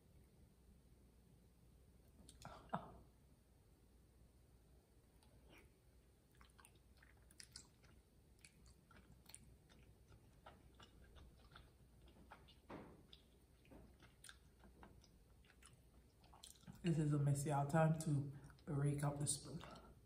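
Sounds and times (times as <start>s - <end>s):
mouth chewing sounds: 5.2s - 16.9s, 18.0s - 20.0s.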